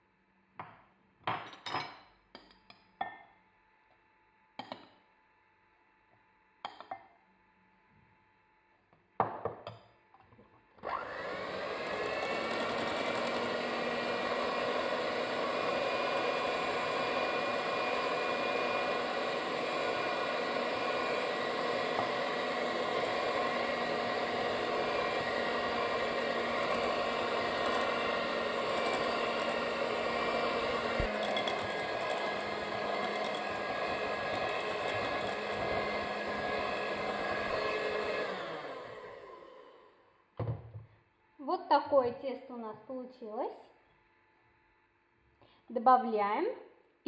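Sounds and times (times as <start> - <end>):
electric hand mixer whine: 10.8 - 40.0.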